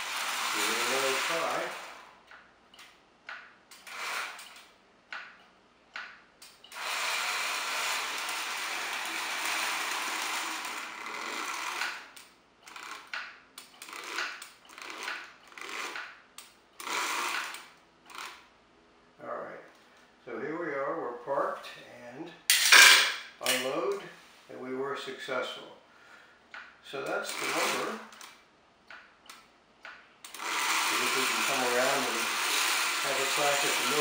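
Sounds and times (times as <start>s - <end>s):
toy train motor whirring: 0.0s - 2.2s, 3.7s - 4.6s, 6.7s - 13.1s, 16.8s - 18.4s, 27.3s - 28.3s, 30.3s - 34.0s.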